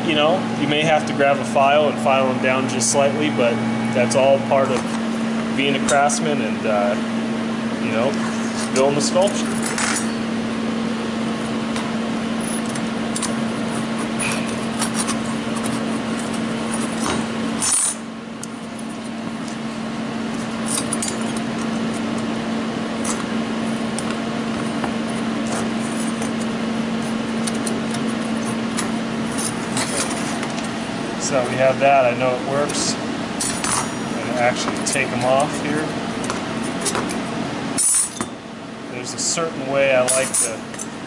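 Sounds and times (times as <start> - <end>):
steady hum: 0.0 - 41.0
steel parts clinking and scraping: 12.4 - 18.0, 20.6 - 21.5, 37.8 - 38.3, 40.0 - 40.9.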